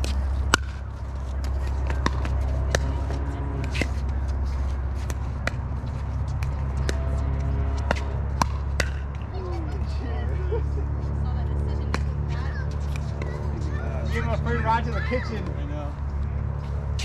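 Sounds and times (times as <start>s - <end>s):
paddles hitting plastic ball: 0.0s - 2.9s, 7.8s - 9.3s
steady low rumble: 0.0s - 17.0s.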